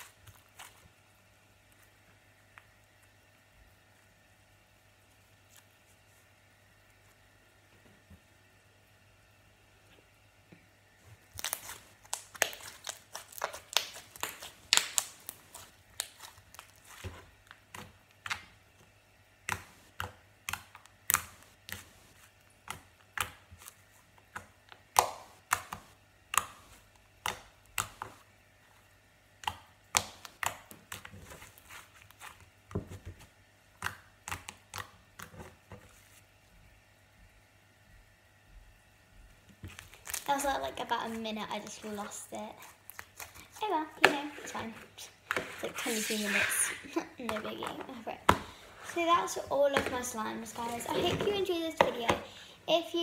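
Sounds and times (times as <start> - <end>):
slime squished with clicking pops: 11.3 - 16.7, 24.3 - 28.2, 29.4 - 31.1.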